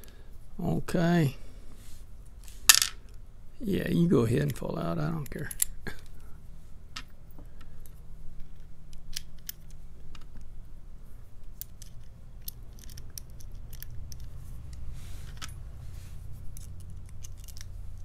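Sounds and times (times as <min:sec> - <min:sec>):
steady low hum: 0:00.0 - 0:18.0
padlock metallic clicks: 0:11.4 - 0:14.8.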